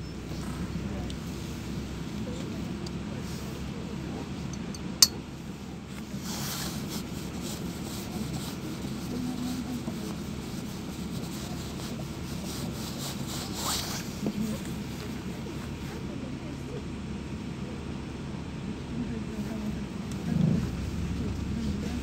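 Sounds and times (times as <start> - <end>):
bus engine rumble: 0.0 - 22.0.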